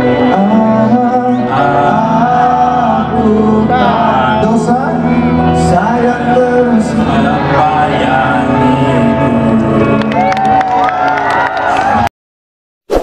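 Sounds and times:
men singing a duet: 0:00.0 - 0:10.3
musical backing: 0:00.0 - 0:12.1.

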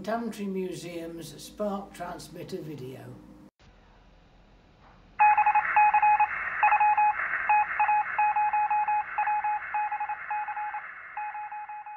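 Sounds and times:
morse code beeping: 0:05.2 - 0:11.9.

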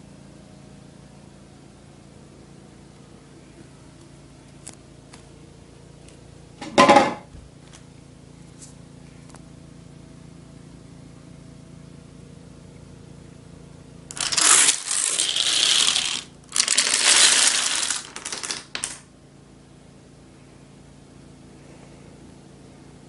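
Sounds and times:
dominoes clattering: 0:14.1 - 0:19.0.

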